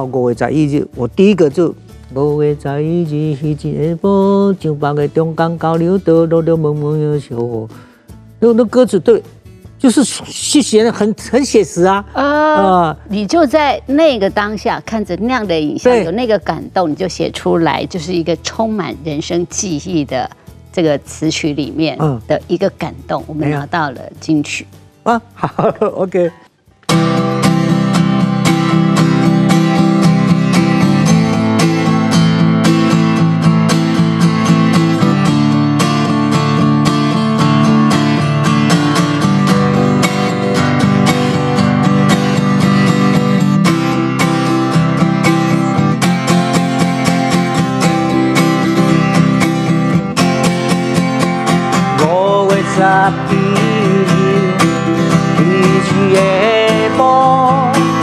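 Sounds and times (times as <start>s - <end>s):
acoustic guitar strumming: 0.0s - 58.0s
man singing: 2.2s - 5.6s, 51.8s - 58.0s.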